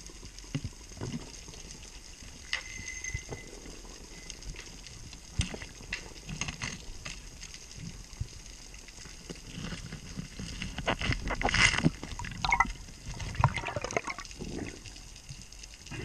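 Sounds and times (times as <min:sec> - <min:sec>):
underwater bubbling and trickling: 0:00.0 - 0:16.0
knocks and scrapes on rock: 0:09.3 - 0:12.2.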